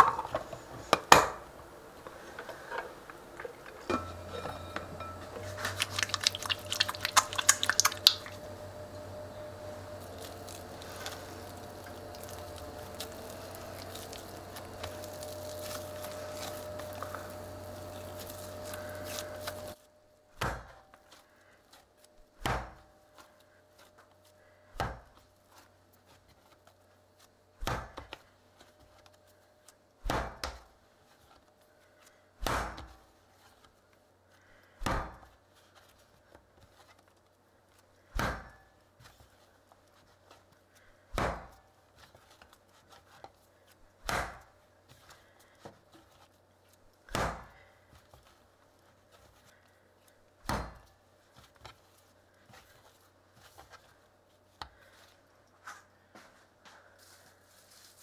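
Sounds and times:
faint rubbing of dough: 2.0 - 20.0, 20.9 - 29.9, 30.5 - 58.0
dough thumping on wooden board: 22.4 - 22.8, 41.1 - 41.6, 44.0 - 44.5, 47.1 - 47.6.

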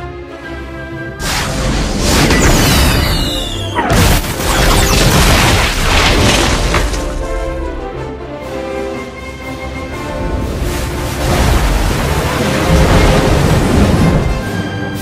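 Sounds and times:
music: 0.0 - 15.0
explosion blasts: 11.2 - 14.4.

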